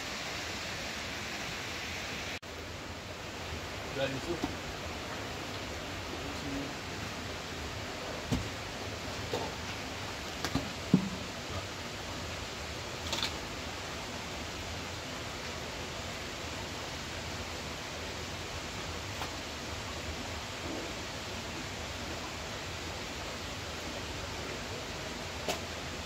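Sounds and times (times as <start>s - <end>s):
steady rushing noise: 0.0s - 26.0s
knocks of wooden bucket: 10.5s - 11.3s.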